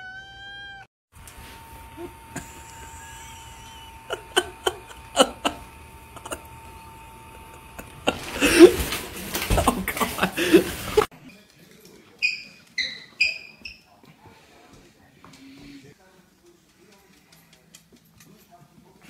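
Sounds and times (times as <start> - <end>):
faint steady hum: 1.2 - 10.7
bursts of laughter: 2.0 - 11.1.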